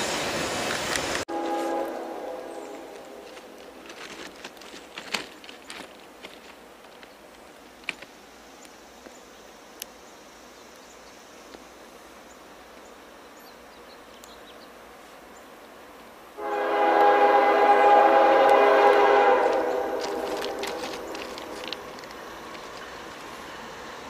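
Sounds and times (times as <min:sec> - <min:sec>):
faint outdoor ambience: 0:00.0 - 0:24.0
locomotive air horn: 0:01.3 - 0:03.3, 0:16.4 - 0:21.5.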